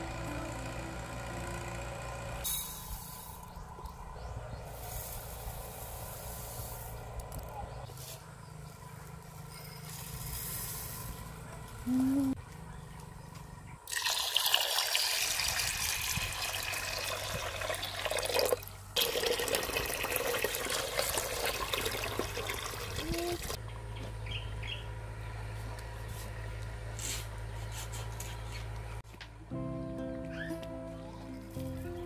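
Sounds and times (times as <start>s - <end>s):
steady low hum: 0.0s - 9.4s, 10.1s - 13.9s
water pouring into a pot: 13.9s - 23.6s.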